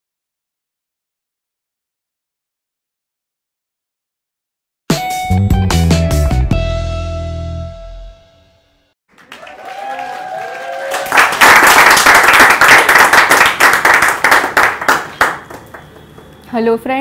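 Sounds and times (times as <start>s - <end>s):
loud applause: 9.1s - 16.1s.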